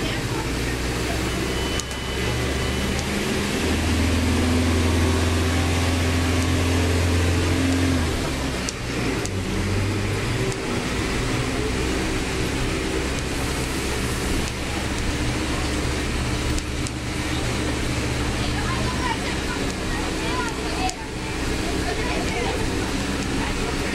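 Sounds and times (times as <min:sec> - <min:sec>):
bus engine drone: 0:00.0 - 0:23.9
road noise: 0:00.0 - 0:23.9
clicks: 0:01.5 - 0:03.2, 0:08.5 - 0:09.4, 0:10.4 - 0:10.7, 0:12.9 - 0:21.0.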